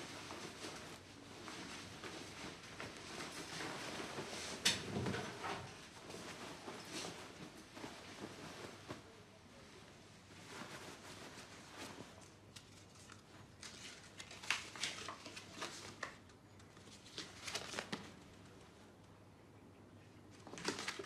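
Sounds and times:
clothing rustling: 0.0 - 18.6
paper crinkling: 10.3 - 18.3, 20.4 - 21.0.

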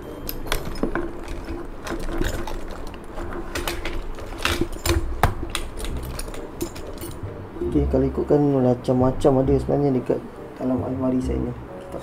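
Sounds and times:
small hard objects clinking: 0.0 - 7.2.

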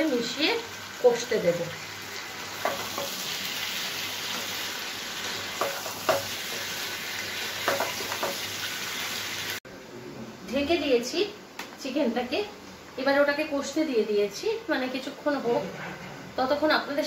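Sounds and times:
food sizzling in hot oil: 0.0 - 9.6.

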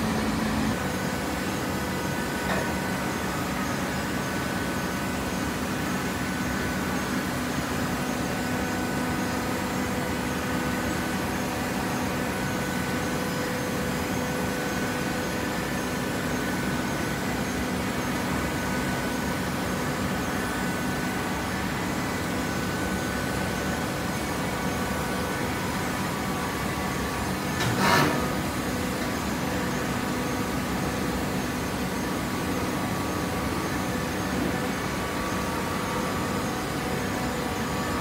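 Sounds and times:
baling press mechanical hum: 0.0 - 38.0.

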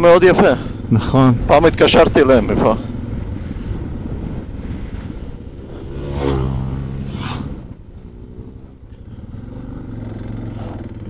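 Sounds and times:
motorcycle engines at low speed: 0.0 - 11.0
motorcycle passing by: 2.2 - 11.0.

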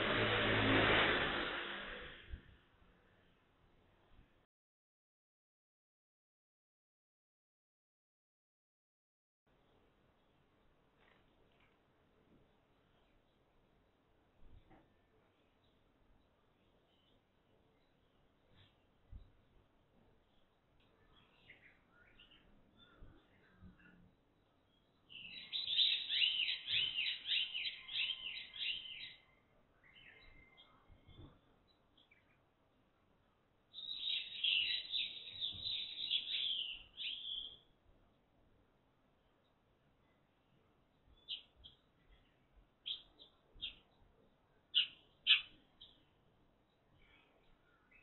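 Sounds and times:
sparrow chirping: 24.7 - 30.8, 33.7 - 37.7, 41.0 - 44.0, 44.7 - 48.0.

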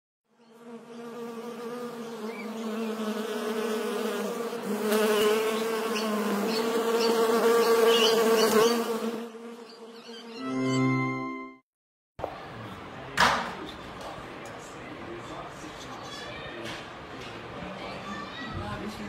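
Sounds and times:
cartoon bee buzzing: 0.3 - 11.4.

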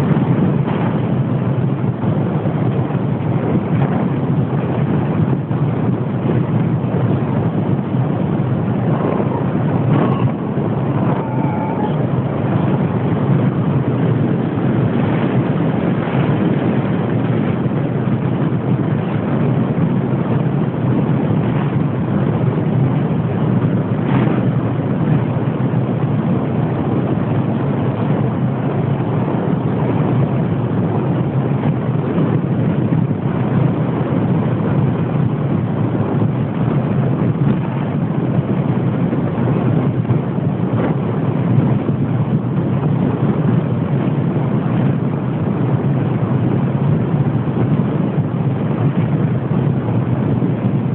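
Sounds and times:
small aircraft engine drone: 0.0 - 50.9
wind rushing on microphone: 0.0 - 50.9.

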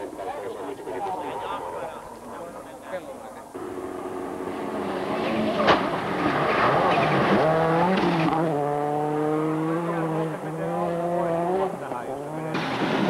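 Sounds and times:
rally car engine running hard: 3.4 - 13.0.

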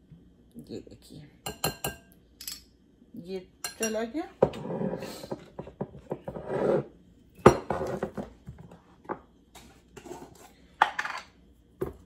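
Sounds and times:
metal spoon clinking on glass bowl: 3.6 - 4.0
spoon scraping bowl: 6.1 - 6.9, 10.0 - 10.6.

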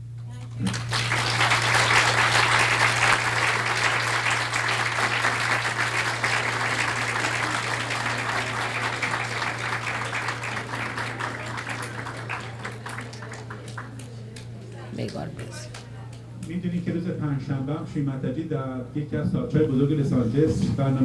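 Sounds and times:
audience applauding: 0.5 - 16.2.

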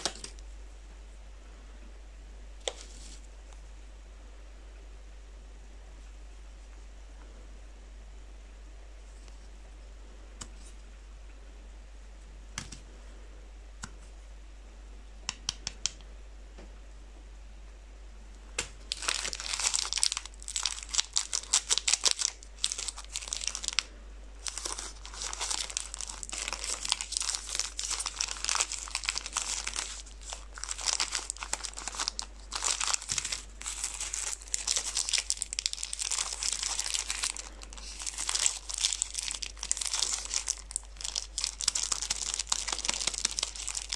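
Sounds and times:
plastic wrappers crinkling and tearing: 0.0 - 0.4, 18.9 - 43.9.

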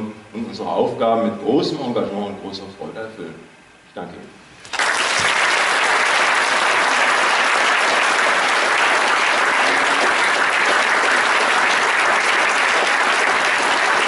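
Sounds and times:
audience applauding: 4.7 - 14.0.

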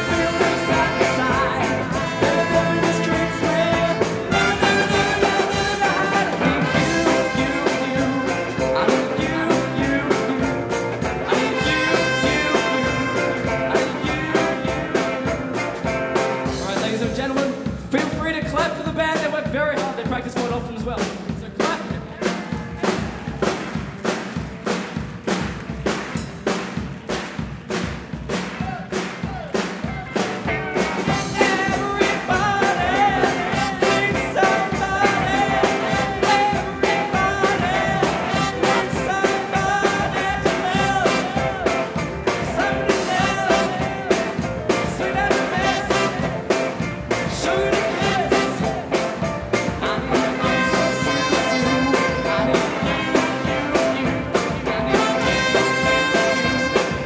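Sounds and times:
man singing into microphone: 0.0 - 15.4, 16.5 - 22.4, 31.0 - 57.0
horn section: 0.0 - 17.4, 28.3 - 57.0
drum beat: 0.0 - 57.0
electric guitar: 29.9 - 57.0.

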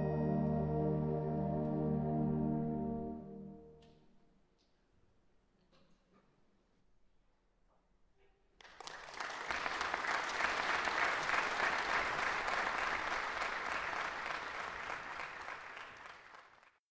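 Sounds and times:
audience applauding: 8.6 - 16.8.

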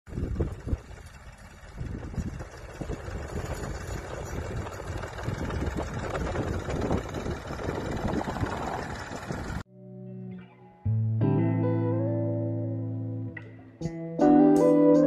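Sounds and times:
tractor diesel engine running: 0.1 - 9.6.

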